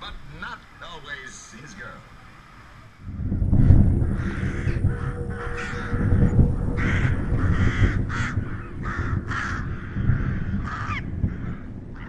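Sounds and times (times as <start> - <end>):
steady low rumble: 3.0 - 12.0.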